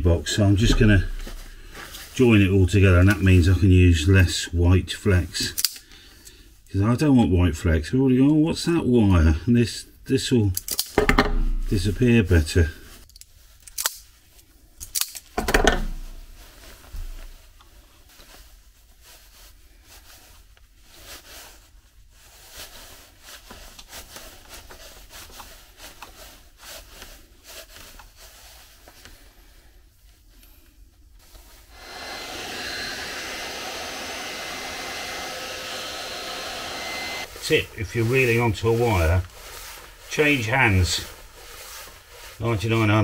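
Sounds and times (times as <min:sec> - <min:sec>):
wire twisting clicks and rustles: 0:10.6 - 0:11.7, 0:13.0 - 0:16.2
heat gun blowing: 0:31.6 - 0:40.0.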